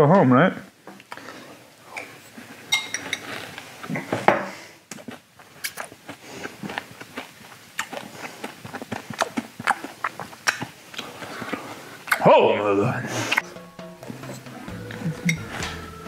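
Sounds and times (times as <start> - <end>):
hard candy being chewed: 4.9 - 12.2.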